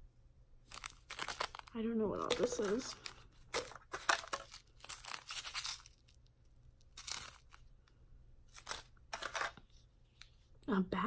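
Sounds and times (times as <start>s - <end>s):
plastic packets crinkling: 0.7s - 7.9s, 8.5s - 9.6s.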